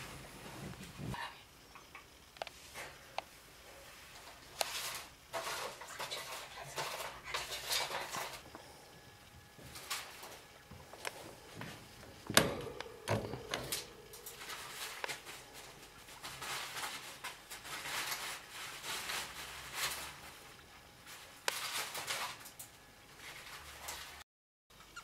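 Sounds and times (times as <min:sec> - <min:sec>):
paper bedding rustling: 0:13.9 - 0:22.5.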